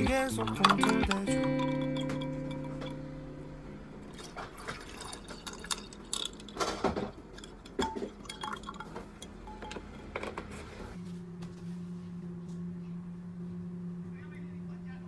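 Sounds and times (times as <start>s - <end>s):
ice clinking against glass: 0.3s - 3.0s, 4.1s - 9.9s
juice pouring and splashing: 4.0s - 9.4s.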